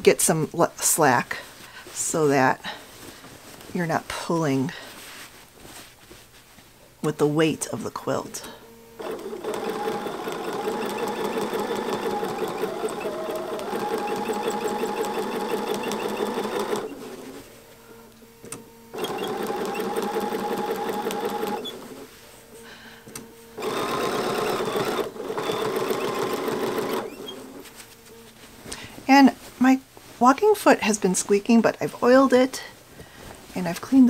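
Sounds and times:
sewing machine foot squeaking: 9.0s - 17.1s, 19.0s - 22.0s, 23.6s - 27.6s
sewing machine stitching: 9.0s - 17.4s, 18.9s - 22.1s, 23.6s - 27.6s.

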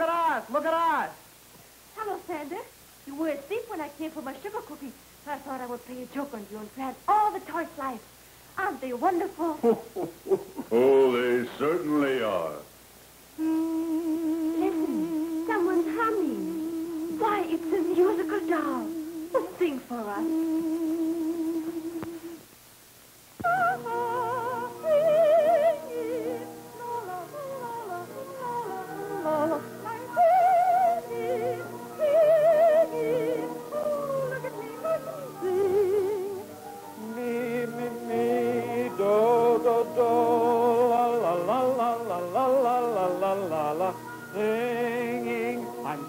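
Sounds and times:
operatic singing with orchestra: 23.4s - 36.4s, 37.0s - 46.0s.

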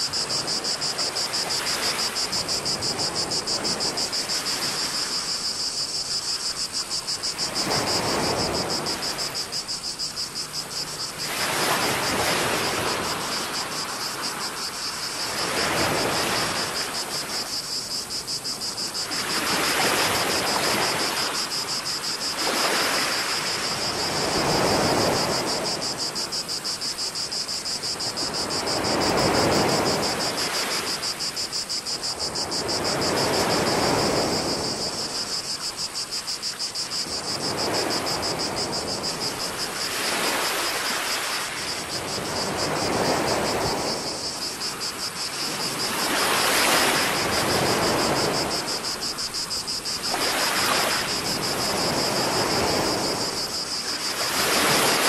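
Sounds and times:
cicadas buzzing: 0.0s - 55.0s
small waves washing: 10.4s - 17.6s, 19.0s - 55.0s.

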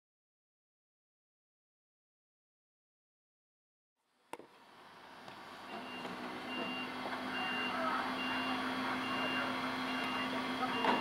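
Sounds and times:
high electronic beeps: 5.8s - 11.0s.

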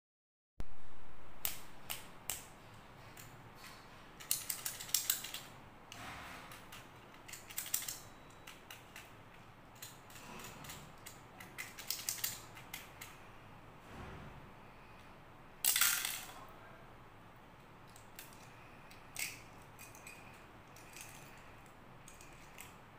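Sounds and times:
plastic toy parts clicking and rattling: 3.1s - 13.2s, 15.6s - 16.4s, 17.8s - 22.9s.

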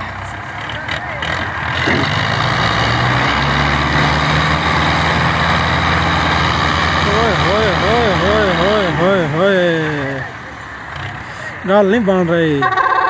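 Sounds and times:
tractor diesel engine revving: 0.0s - 13.0s.

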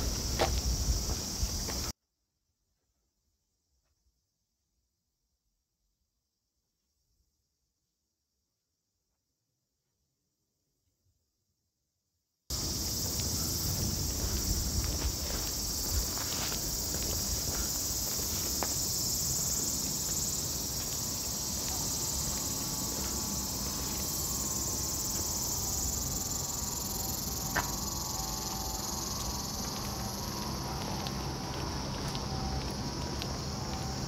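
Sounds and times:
cicadas buzzing: 0.0s - 1.9s, 12.5s - 34.0s.

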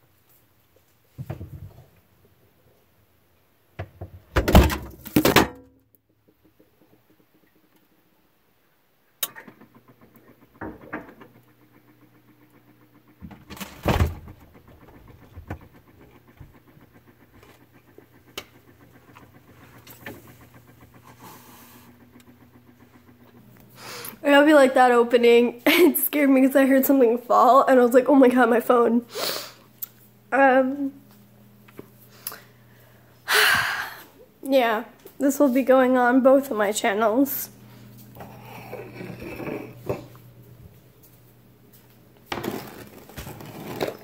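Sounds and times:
low steady hum: 0.0s - 44.0s
refrigerator door and items clattering: 3.8s - 5.8s, 13.2s - 14.4s.

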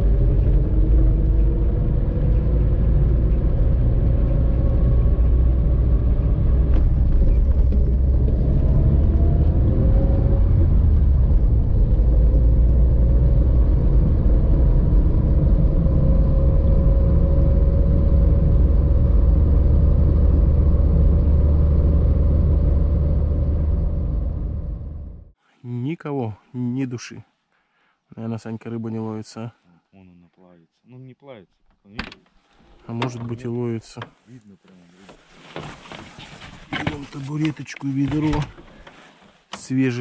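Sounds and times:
car road and engine rumble: 0.0s - 25.4s.

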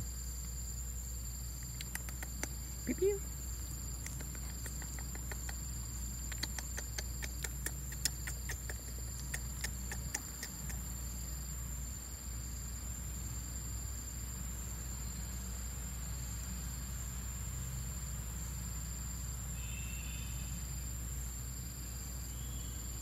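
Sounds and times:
light irregular clicks: 1.6s - 2.6s, 3.9s - 10.9s
high-pitched insect buzz: 19.4s - 20.8s.

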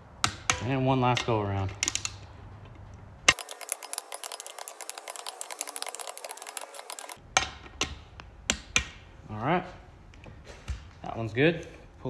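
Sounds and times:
ratchet clicks: 3.3s - 7.2s.

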